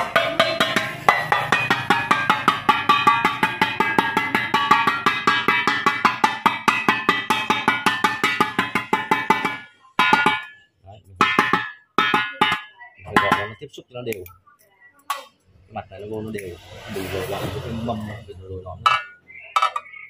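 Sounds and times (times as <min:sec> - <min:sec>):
metal tool tapping metal pot: 0:00.0 - 0:13.6, 0:18.8 - 0:20.0.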